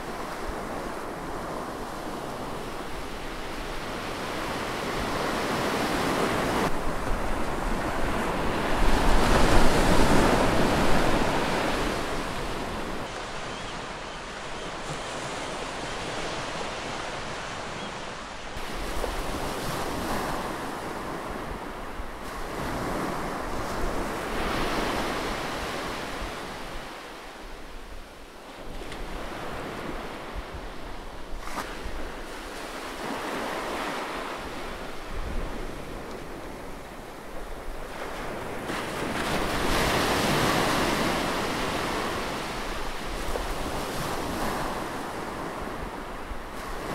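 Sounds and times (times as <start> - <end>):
heavy ocean surf breaking: 0.0 - 46.9
wind on microphone: 0.0 - 46.9.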